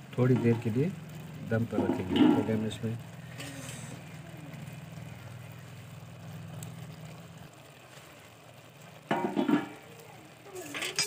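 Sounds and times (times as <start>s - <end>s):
metal cookware clatter: 0.2s - 0.8s, 1.6s - 2.8s, 9.1s - 9.9s, 10.5s - 11.0s.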